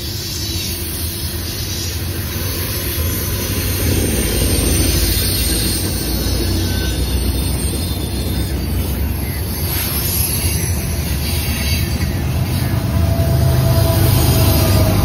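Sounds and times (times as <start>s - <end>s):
diesel locomotive running: 0.0s - 15.0s
freight cars rumbling past: 3.3s - 15.0s.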